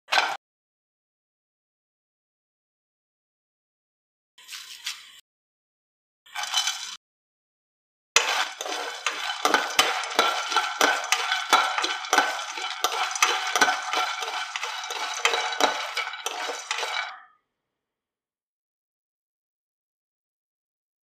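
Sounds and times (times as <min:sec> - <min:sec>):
nuts rattling in a pan: 0:06.4 - 0:07.0, 0:08.2 - 0:17.1
peppercorns tipped into pan: 0:08.2 - 0:17.2.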